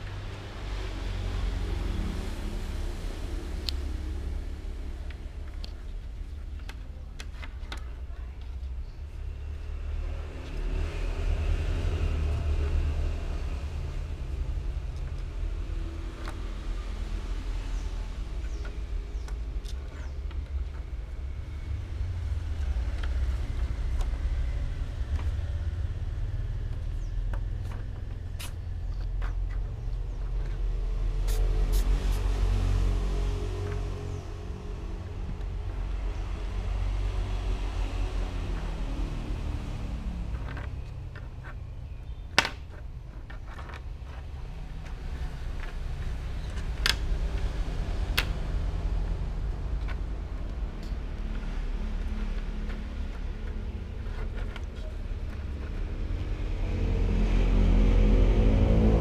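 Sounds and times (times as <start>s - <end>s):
low background rumble: 0.0s - 59.0s
low rumble: 43.6s - 59.0s.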